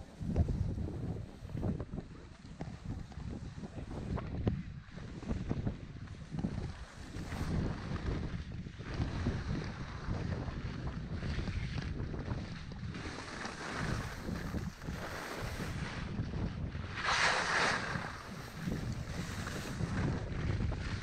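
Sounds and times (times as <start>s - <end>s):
wind buffeting microphone: 0.0s - 21.0s
skis hissing on snow: 13.4s - 15.8s, 17.0s - 19.8s.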